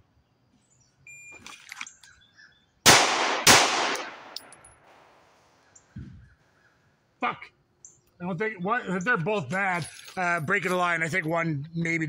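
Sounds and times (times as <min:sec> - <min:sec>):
pistol shots echoing: 0:02.8 - 0:04.6.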